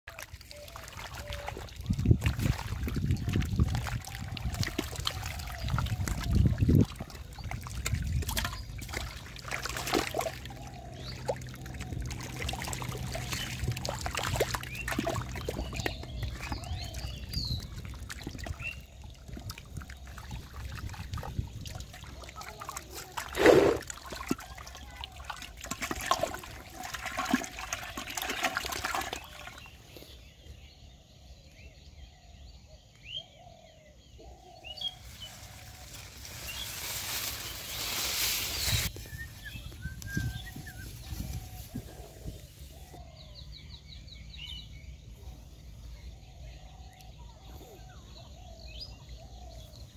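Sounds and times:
fish splashing in water: 0:00.1 - 0:29.7
water trickling: 0:00.1 - 0:29.8.

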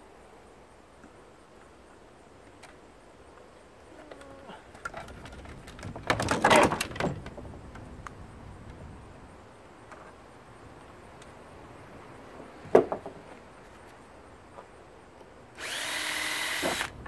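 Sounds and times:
plastic knocking and cracking: 0:05.1 - 0:07.6.

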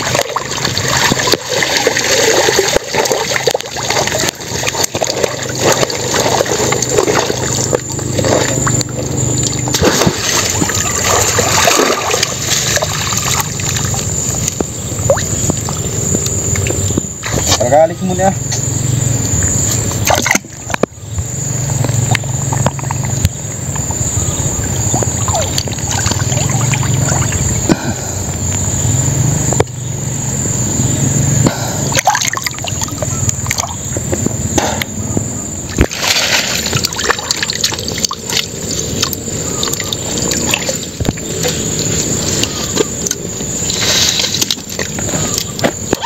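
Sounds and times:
water trickling and dripping: 0:00.0 - 0:17.2, 0:35.8 - 0:45.6
water splashing and sloshing: 0:00.0 - 0:17.8, 0:19.1 - 0:30.6, 0:31.4 - 0:46.0.

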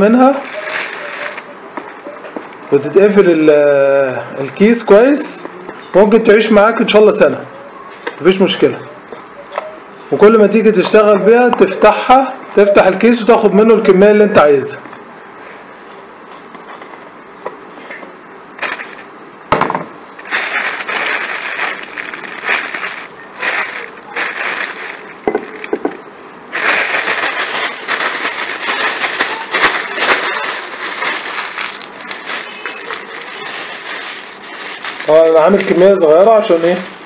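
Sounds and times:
plastic bag crinkling: 0:00.0 - 0:02.9, 0:18.6 - 0:19.1, 0:20.1 - 0:37.0.

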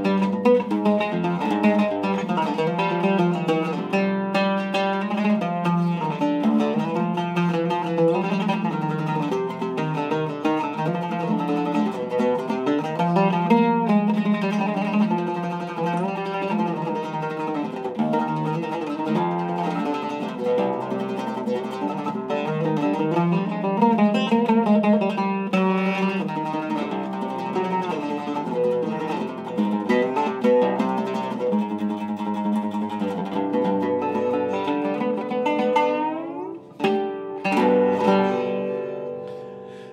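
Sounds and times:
oud melody plucked: 0:00.0 - 0:39.9.

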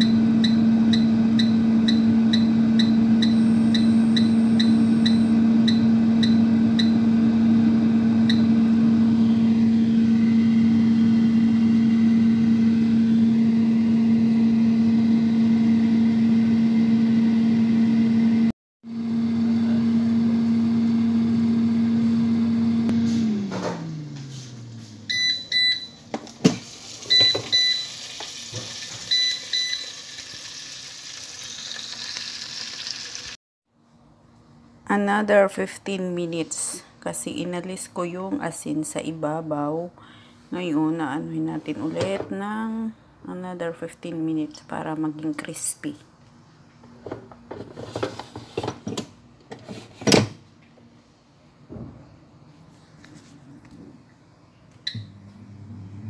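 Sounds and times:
air fryer beeping: 0:00.0 - 0:32.1, 0:54.8 - 0:56.0
air fryer fan winding down: 0:00.0 - 0:33.3, 0:54.8 - 0:56.0
air fryer basket clunk: 0:26.1 - 0:27.8
faint sizzle: 0:26.7 - 0:33.4.

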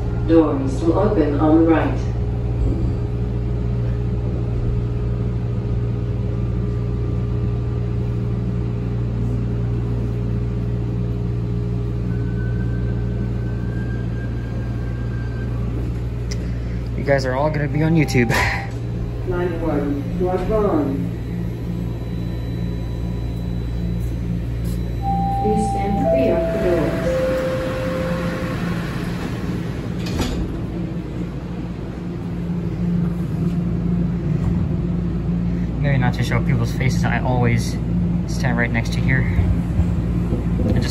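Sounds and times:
subway car low rumble: 0:00.0 - 0:40.9
humming motor tone: 0:02.0 - 0:35.8
faint high whine: 0:11.4 - 0:33.6
door-closing chime: 0:18.0 - 0:18.8, 0:25.0 - 0:30.3
train doors shutting knock: 0:26.0 - 0:30.8.

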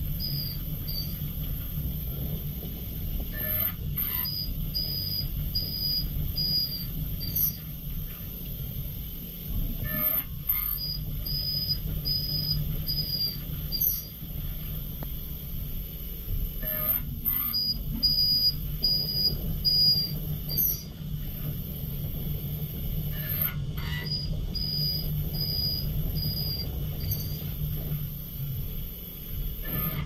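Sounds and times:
spindle hum: 0:00.0 - 0:30.0
cutter squealing: 0:23.1 - 0:27.5, 0:29.6 - 0:30.0.

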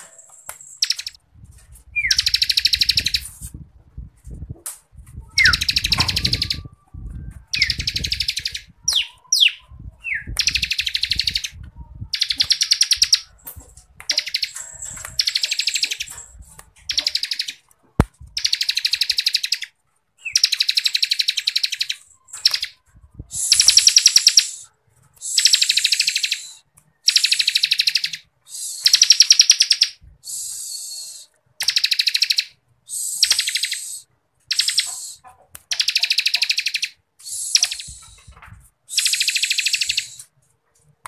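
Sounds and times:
bird trilling: 0:00.7 - 0:01.2, 0:02.0 - 0:03.2, 0:05.4 - 0:06.8, 0:07.5 - 0:13.3, 0:14.1 - 0:17.6, 0:18.4 - 0:22.8, 0:23.4 - 0:24.6, 0:25.2 - 0:38.3, 0:38.9 - 0:40.2.

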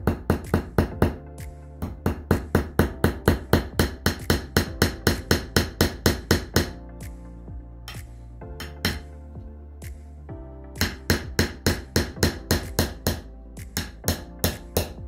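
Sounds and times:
small hammer tapping a nail: 0:01.8 - 0:06.8, 0:08.6 - 0:09.1, 0:10.8 - 0:15.0.

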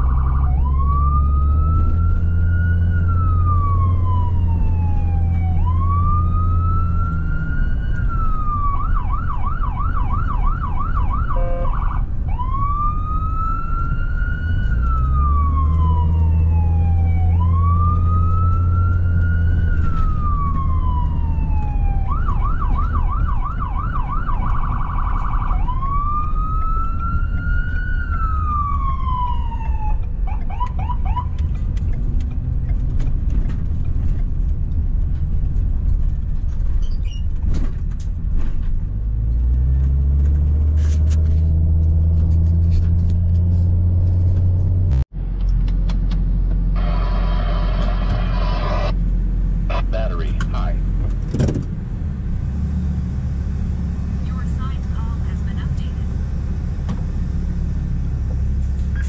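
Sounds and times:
electronic siren yelping and wailing: 0:00.0 - 0:31.3, 0:46.8 - 0:49.0
engine and road rumble: 0:00.0 - 0:59.0.

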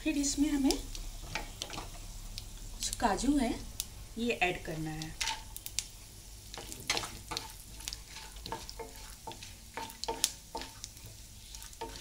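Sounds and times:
soft sizzle: 0:00.0 - 0:12.0
spatula scraping a pan: 0:05.2 - 0:05.6, 0:06.5 - 0:12.0.

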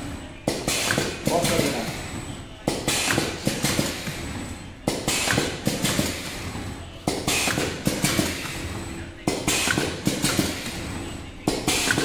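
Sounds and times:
packing machine running: 0:00.0 - 0:12.0.

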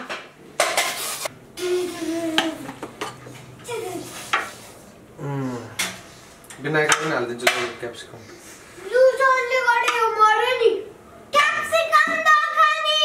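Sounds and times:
utensils scraping dishes and pots: 0:00.6 - 0:01.3.

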